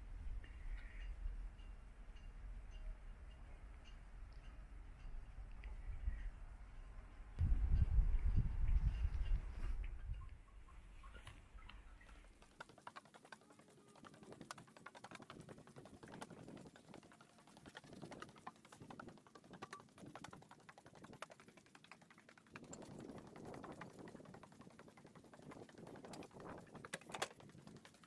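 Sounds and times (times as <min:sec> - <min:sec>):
small clicks and taps from boards: 0:23.6 - 0:28.0.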